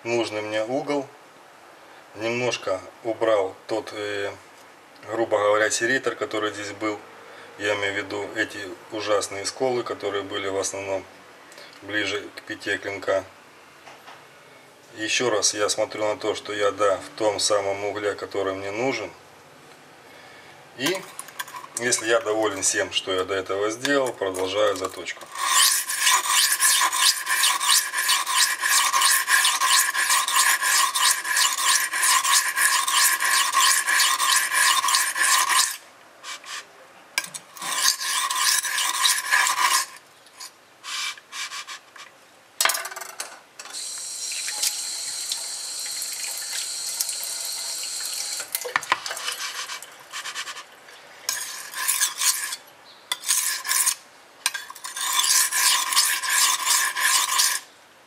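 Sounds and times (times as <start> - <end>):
knife scraping on whetstone: 24.7 - 42.1, 48.9 - 50.7, 51.3 - 57.7.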